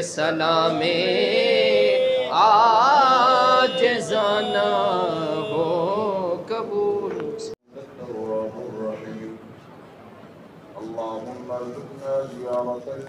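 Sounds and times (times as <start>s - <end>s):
men chanting unaccompanied: 0.0s - 9.3s.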